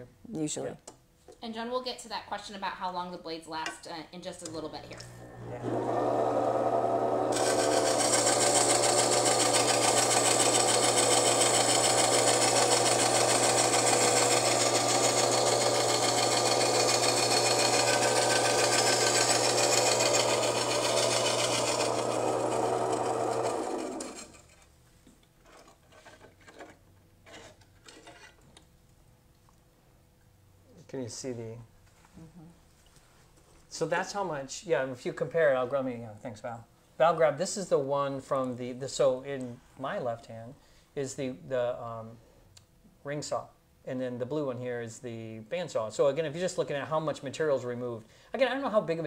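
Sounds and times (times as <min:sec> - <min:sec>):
bandsaw motor hum: 0:04.9 - 0:24.6.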